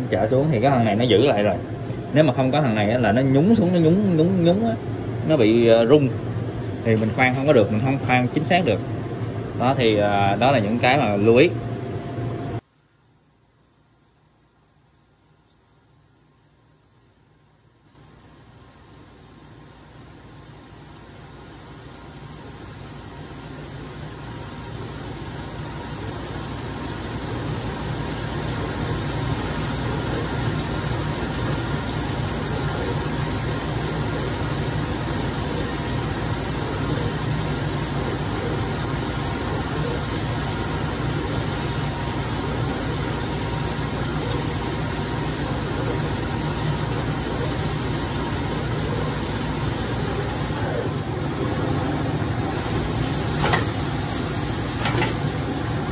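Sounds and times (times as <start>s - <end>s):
coolant spray: 19.4s - 55.9s.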